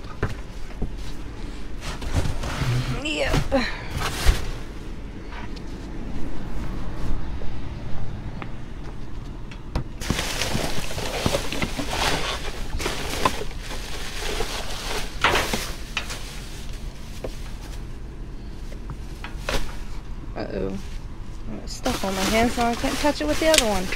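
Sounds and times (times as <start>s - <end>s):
steady low rumble: 0.0s - 23.9s
plastic bags crinkling: 10.0s - 17.9s, 21.7s - 23.9s.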